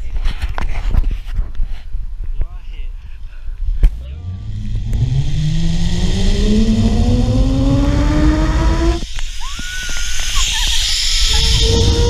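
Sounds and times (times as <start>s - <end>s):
wind rumbling on microphone: 0.0s - 12.0s
zipline pulleys whining on cable: 4.2s - 12.0s.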